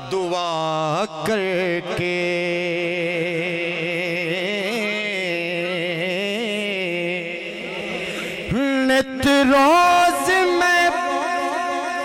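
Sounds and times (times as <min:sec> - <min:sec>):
man singing held note: 0:07.4 - 0:12.0.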